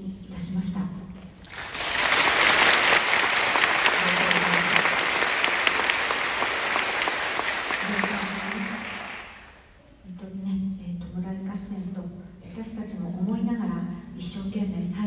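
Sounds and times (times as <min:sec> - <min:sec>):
audience applauding: 0:01.4 - 0:09.6.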